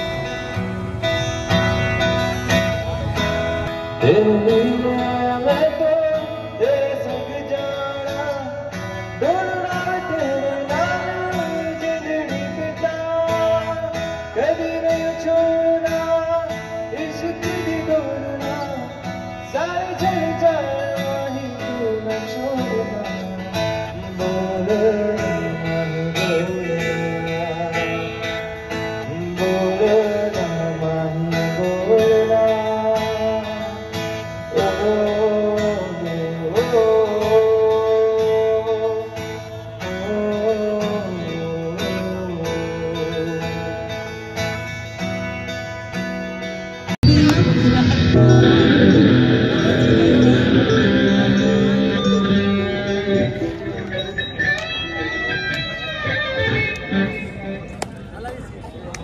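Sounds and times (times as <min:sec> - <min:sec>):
strummed acoustic guitar: 0:00.0 - 0:57.9
man singing: 0:03.9 - 0:44.2, 0:47.0 - 0:54.2
steady beat: 0:47.0 - 0:57.3.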